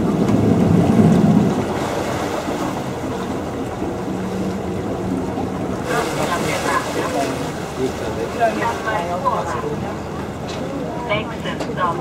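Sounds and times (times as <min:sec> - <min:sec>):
wind on microphone: 0:00.0 - 0:07.3
boat engine hum: 0:00.0 - 0:12.0
water wash: 0:00.0 - 0:12.0.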